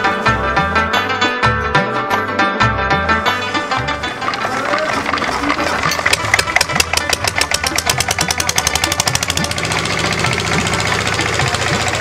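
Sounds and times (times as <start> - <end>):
diesel engine starting and running: 2.7 - 12.0.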